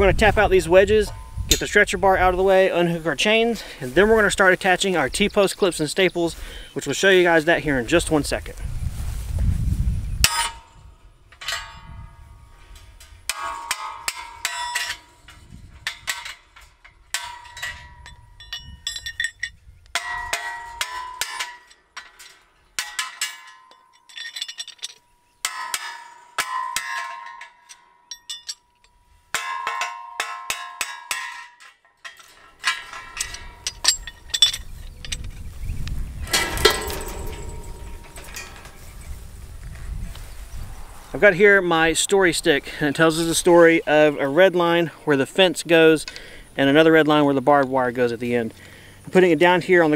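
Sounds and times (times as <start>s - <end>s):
steel ringing: 0.6s - 2.0s, 10.2s - 35.5s, 36.1s - 39.5s
metal-on-metal taps and clinks: 1.0s - 1.9s, 11.3s - 38.9s.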